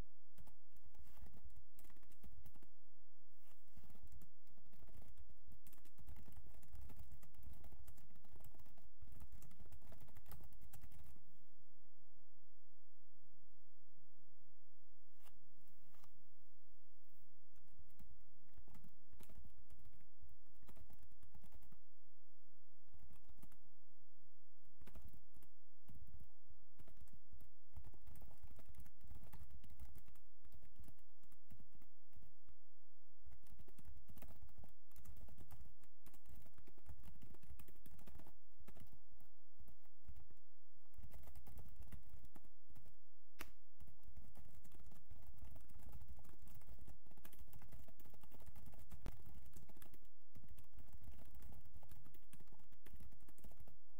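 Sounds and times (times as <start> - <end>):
typing on computer keyboard: 0.4 - 2.7, 3.7 - 11.2, 17.6 - 21.8, 23.0 - 23.6, 24.8 - 26.2, 26.8 - 32.3, 33.3 - 39.0, 39.6 - 53.8.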